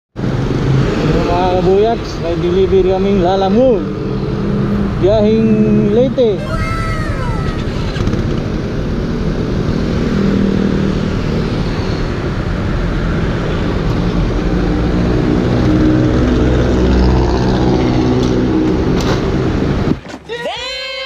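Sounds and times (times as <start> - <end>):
motorcycle engines running: 7.1 - 19.8.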